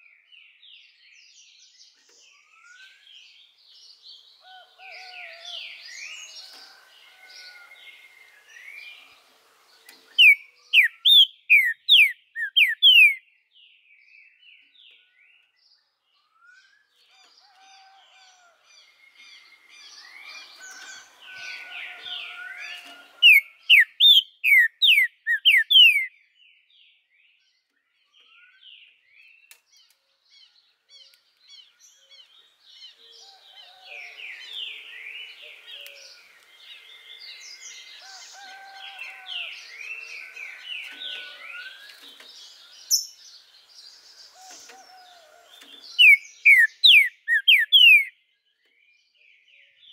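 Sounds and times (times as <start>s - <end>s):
bird chirping and twittering: 0.8s - 17.6s, 18.8s - 49.9s
bird whistling down-slurred notes: 23.2s - 26.1s, 46.0s - 48.1s.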